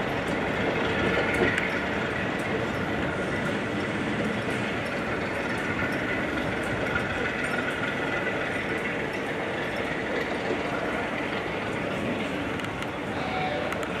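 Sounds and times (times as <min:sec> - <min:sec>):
diesel locomotive running: 0:00.0 - 0:14.0
passenger train passing: 0:00.0 - 0:14.0
faint high tone: 0:13.1 - 0:13.8.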